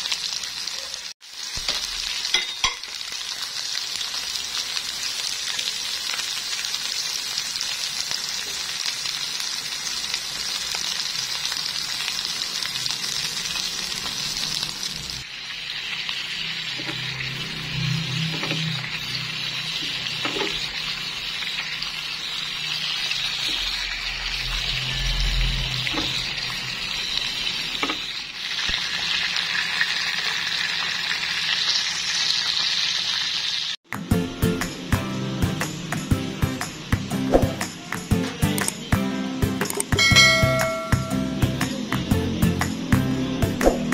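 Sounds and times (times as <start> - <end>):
steak sizzling in butter: 0.0 - 33.8
music: 33.8 - 43.9.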